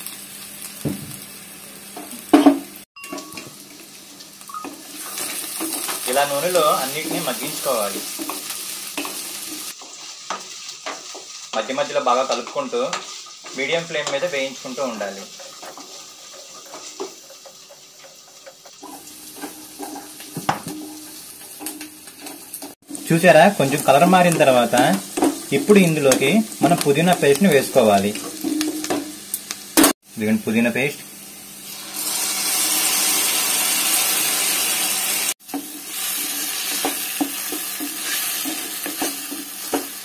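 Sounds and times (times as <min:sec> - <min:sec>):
vegetables sizzling in hot oil: 0:00.0 - 0:40.0
spatula scraping and knocking pan: 0:04.8 - 0:26.9, 0:28.1 - 0:29.2, 0:35.4 - 0:40.0.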